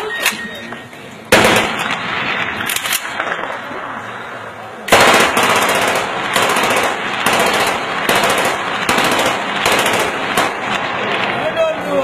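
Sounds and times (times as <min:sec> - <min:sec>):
automatic rifle fire: 0:01.3 - 0:03.6, 0:04.9 - 0:10.9.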